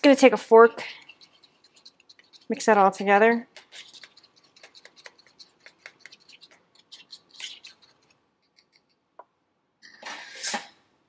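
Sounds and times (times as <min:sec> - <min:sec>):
fork scraping ceramic bowl: 0:00.8 - 0:09.0.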